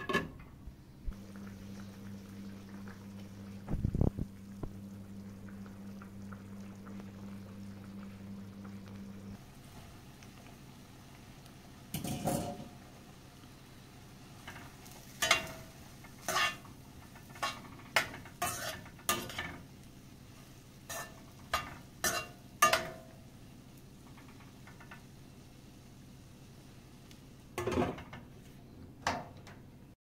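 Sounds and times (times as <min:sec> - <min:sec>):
faint low hum: 0:00.0 - 0:14.1
metal utensil scraping cookware: 0:16.2 - 0:16.7, 0:17.4 - 0:19.6, 0:20.9 - 0:23.0.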